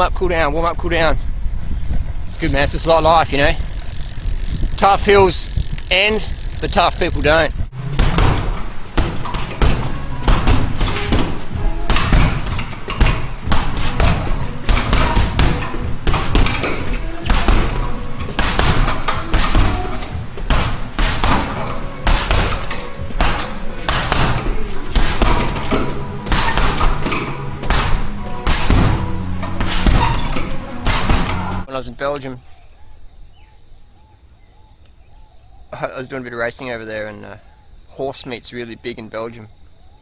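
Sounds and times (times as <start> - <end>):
background music: 5.1 - 31.7
gloves punching heavy bag: 8.0 - 31.6.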